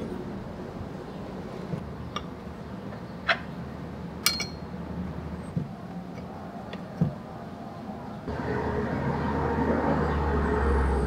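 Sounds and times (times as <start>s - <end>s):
metal clicks and clinks: 4.2s - 4.6s.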